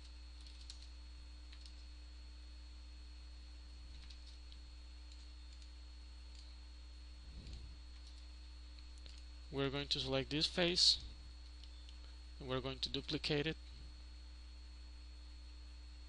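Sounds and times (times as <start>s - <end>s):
low electrical hum: 0.0s - 16.0s
computer mouse clicks: 0.4s - 0.9s, 1.5s - 1.9s, 3.9s - 5.7s, 6.3s - 6.6s, 7.4s - 9.3s.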